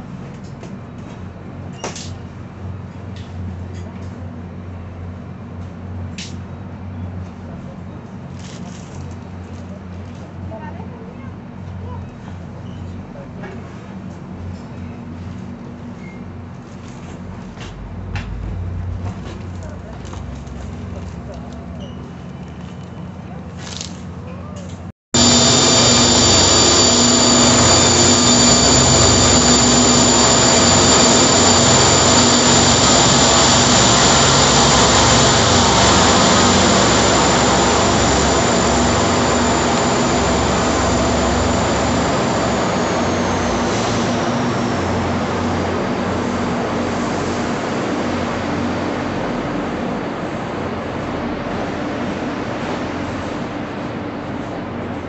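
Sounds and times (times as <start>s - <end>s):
high whining tones: 25.2s - 47.0s
locomotive whirring rumble: 25.2s - 51.1s.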